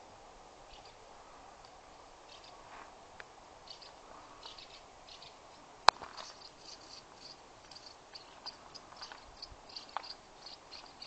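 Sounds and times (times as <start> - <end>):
faint high-pitched chirps: 3.6 - 11.0.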